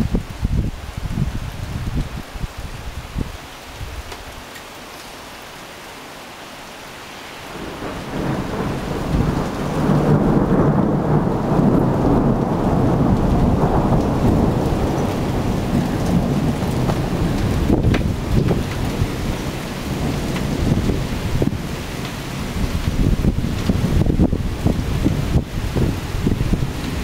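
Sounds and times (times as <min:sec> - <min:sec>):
steady rain hiss: 0:00.0 - 0:27.0
thunder rolling rumble: 0:07.5 - 0:27.0.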